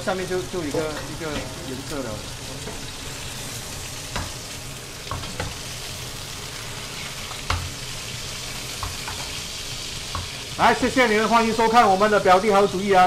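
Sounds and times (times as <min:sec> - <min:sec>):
chicken sizzling in frying pan: 0:00.0 - 0:13.0.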